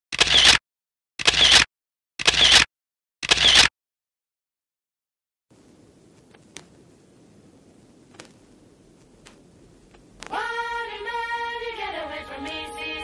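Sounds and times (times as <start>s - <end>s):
faint low background noise: 5.5s - 13.0s.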